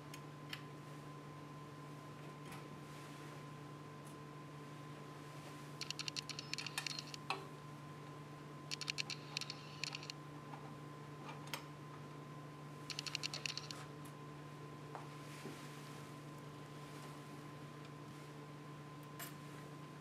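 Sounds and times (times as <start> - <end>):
steady low hum: 0.0 - 20.0
rapid small clicking: 5.8 - 7.2, 8.7 - 10.1, 12.9 - 13.7.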